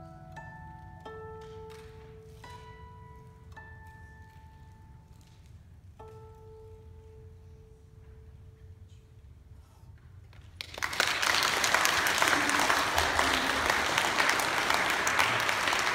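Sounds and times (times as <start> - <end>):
audience applause: 10.6 - 15.9.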